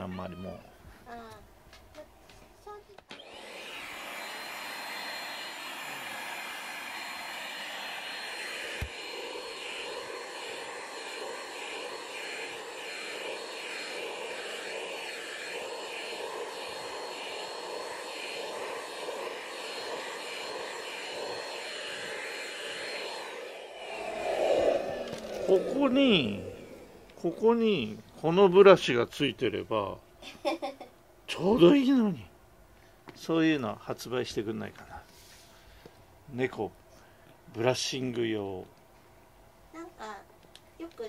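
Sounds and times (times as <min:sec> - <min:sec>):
vacuum cleaner whining: 0:03.1 - 0:28.5.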